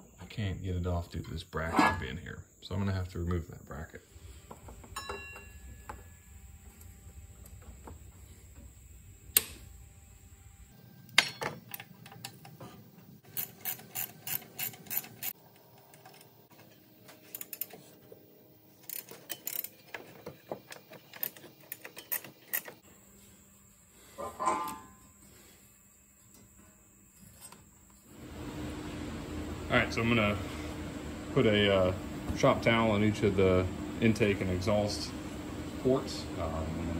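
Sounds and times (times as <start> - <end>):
ratchet clicking: 13.2 - 15.4
metal clunk: 24.2 - 25.0.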